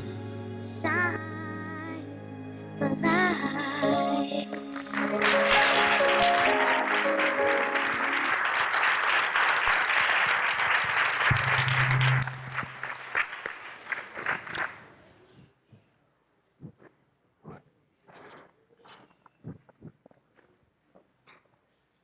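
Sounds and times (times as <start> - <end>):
audience applause: 4.6 - 15.0.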